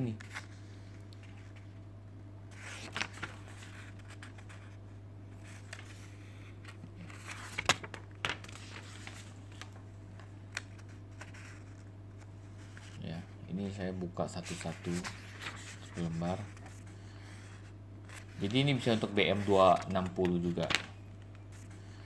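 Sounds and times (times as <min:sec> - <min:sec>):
steady low hum: 0:00.0 - 0:22.0
paper pages rustling: 0:00.1 - 0:01.7, 0:02.5 - 0:04.8, 0:05.4 - 0:13.1, 0:14.4 - 0:22.0.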